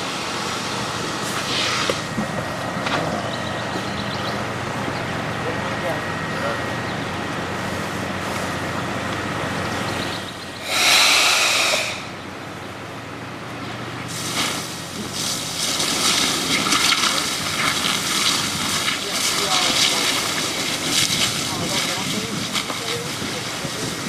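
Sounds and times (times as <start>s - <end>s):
water crackling on fire: 0.0s - 9.8s, 14.0s - 24.0s
low engine hum: 0.0s - 24.0s
hose spray hissing: 1.2s - 2.1s, 10.6s - 12.2s.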